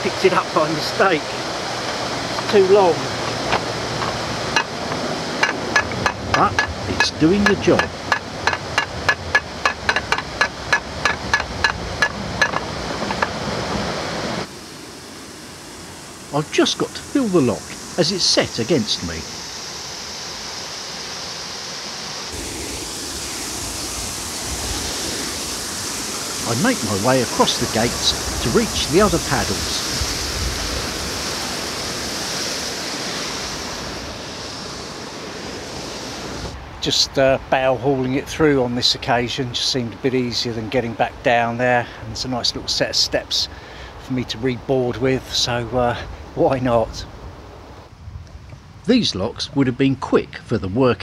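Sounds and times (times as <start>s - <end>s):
water rushing: 0.0s - 51.0s.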